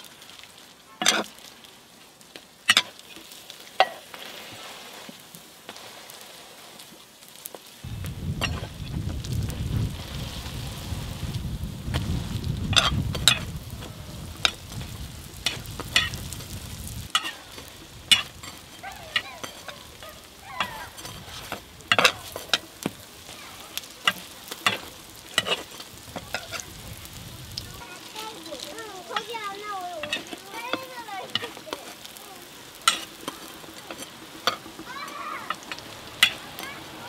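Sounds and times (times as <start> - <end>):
food sizzling on griddle: 0.0 - 37.0
low rumble: 7.8 - 17.1.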